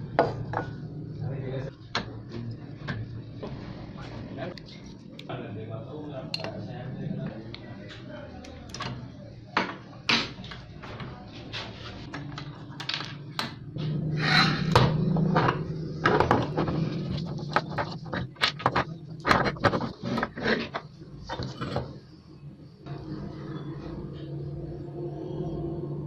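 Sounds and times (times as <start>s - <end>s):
metal scraping rub: 13.8s - 15.4s, 16.3s - 20.8s.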